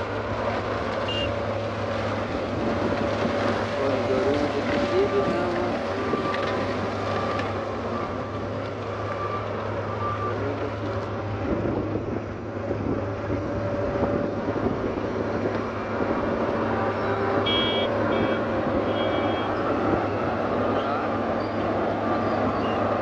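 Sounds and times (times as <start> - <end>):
diesel engines running: 0.0 - 23.0
short high beeps: 17.5 - 19.5.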